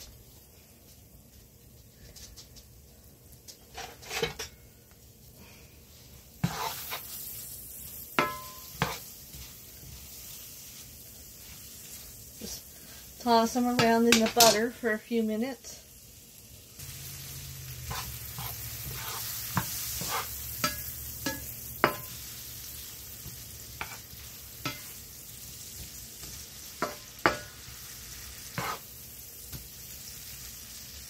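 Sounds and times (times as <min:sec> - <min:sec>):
beans sizzling in skillet: 0:00.0 - 0:31.0
spatula scraping pan: 0:03.6 - 0:04.5, 0:06.3 - 0:14.7, 0:17.7 - 0:29.6.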